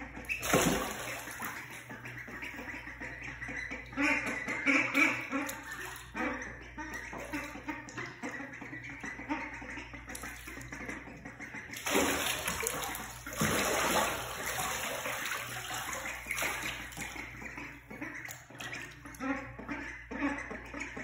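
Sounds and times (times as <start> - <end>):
water splashing in a tub: 0.2 - 2.8, 4.2 - 8.5, 10.0 - 19.3.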